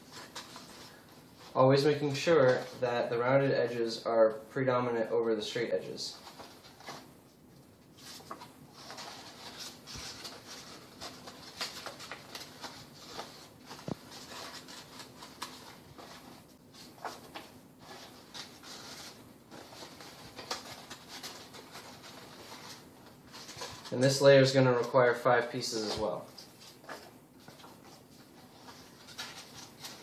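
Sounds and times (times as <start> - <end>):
stiff paper rustling and crinkling: 8.0 - 25.1, 25.7 - 30.0.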